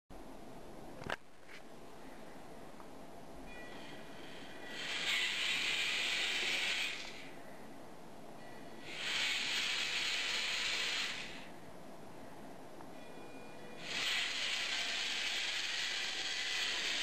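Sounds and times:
small electric gear motors running: 4.2 - 7.3, 8.8 - 11.5, 13.8 - 17.0.

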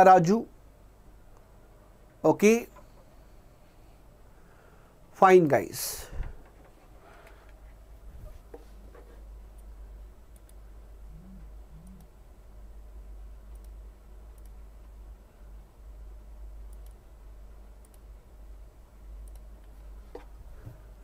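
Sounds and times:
low steady hum: 0.0 - 21.0
faint sharp clicks: 10.3 - 10.6, 13.5 - 14.6, 16.7 - 17.0, 19.2 - 20.3.

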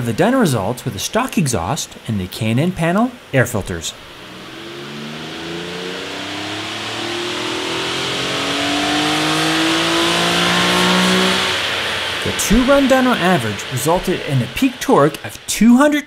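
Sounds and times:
car engine at full throttle: 4.0 - 15.4.

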